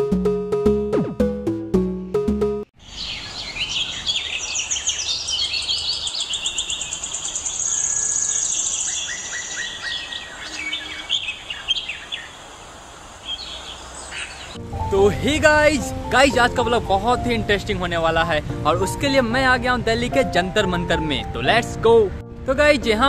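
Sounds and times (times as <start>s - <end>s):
rapid high bird trill: 2.8s - 12.6s
small birds chirping: 2.8s - 14.6s.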